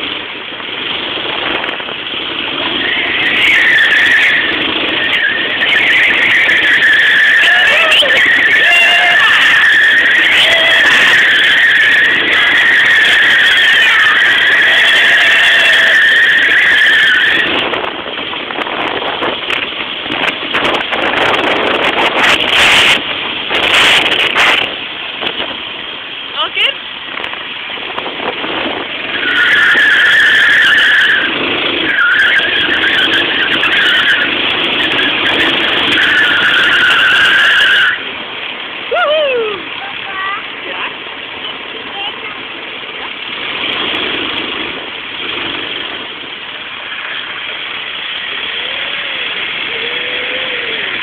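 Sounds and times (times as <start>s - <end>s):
go-kart engine running: 0.0s - 51.0s
high tyre squeal: 2.5s - 17.8s, 29.0s - 38.2s.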